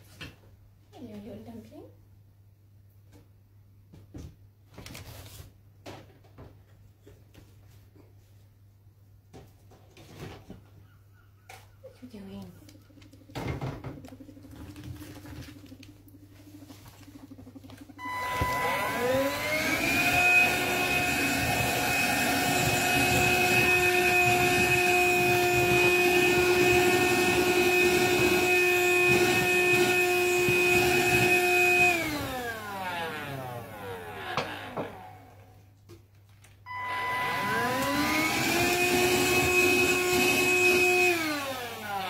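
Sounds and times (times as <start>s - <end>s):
cordless vacuum cleaner motor whine: 13.3s - 35.6s, 36.7s - 42.0s.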